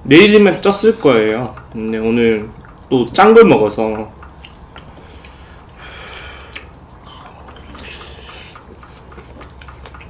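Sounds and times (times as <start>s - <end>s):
chewing: 1.5s - 2.9s, 3.8s - 5.8s, 6.4s - 10.0s
noodle slurping: 6.4s - 9.9s.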